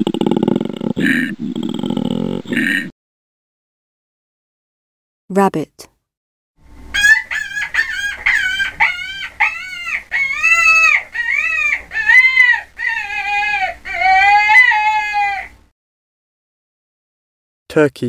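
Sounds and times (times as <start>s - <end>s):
rabbit squealing: 6.9s - 15.6s.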